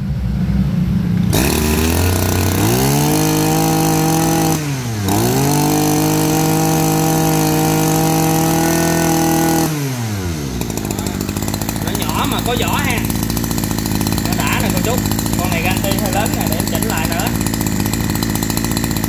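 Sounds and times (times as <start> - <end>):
brush cutter engine revving: 1.1 - 19.0.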